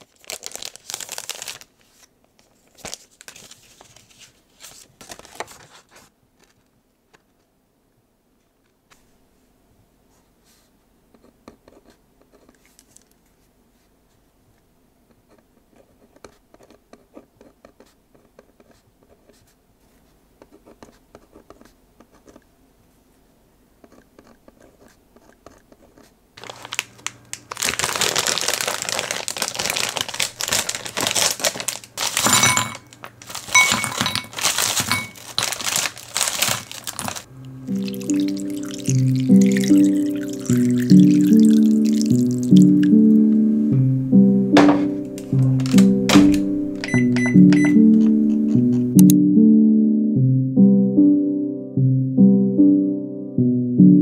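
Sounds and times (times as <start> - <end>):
plastic bag rustling: 0.0 - 6.6, 26.4 - 42.6
cellophane crinkling: 0.0 - 6.7, 26.4 - 42.8
pen scratching on paper: 11.2 - 12.5, 15.3 - 22.4, 23.8 - 26.2
low steady hum: 37.0 - 51.2.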